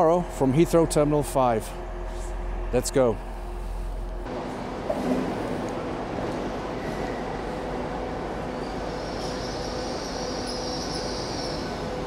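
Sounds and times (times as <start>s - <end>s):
high squeal of train: 6.2s - 12.0s.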